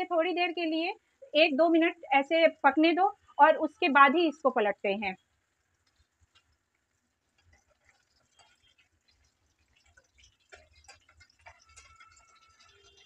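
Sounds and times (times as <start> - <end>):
fish frying crackling in oil: 5.2 - 13.0.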